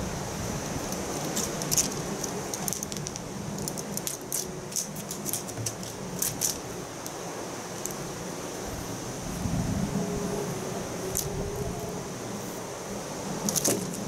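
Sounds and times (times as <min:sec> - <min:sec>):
cat toy rattling and clicking: 0:00.8 - 0:06.6, 0:13.4 - 0:14.0.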